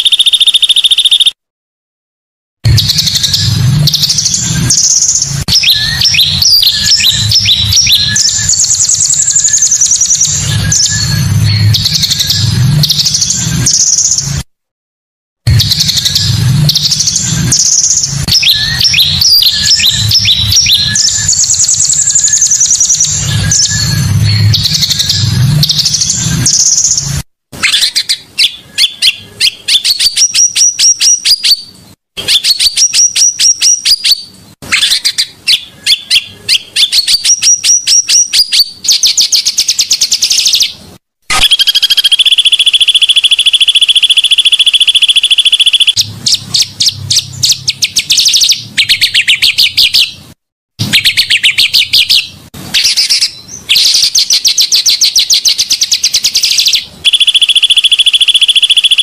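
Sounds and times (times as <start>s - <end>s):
bird chirps and trills: 0.0s - 1.4s, 2.6s - 14.4s, 15.5s - 59.0s
very fast buzzing trill: 41.3s - 46.0s, 57.0s - 59.0s.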